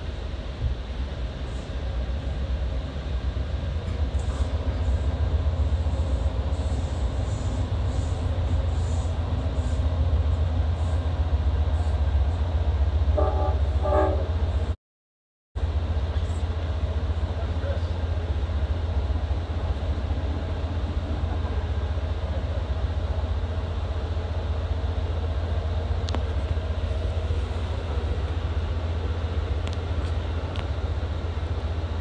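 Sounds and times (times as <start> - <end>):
train rumbling at speed: 0.0 - 14.8, 15.6 - 32.0
train horn blasts: 13.1 - 14.4.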